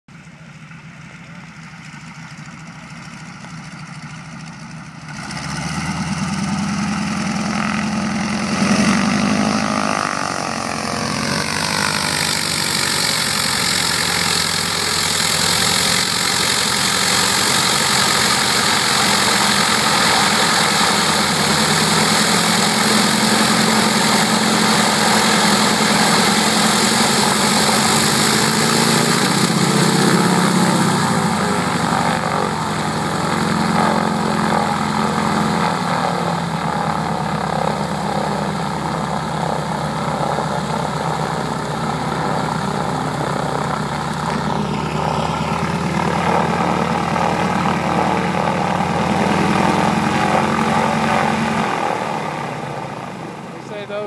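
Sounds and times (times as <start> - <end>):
radial aircraft engine and propeller: 0.1 - 54.0.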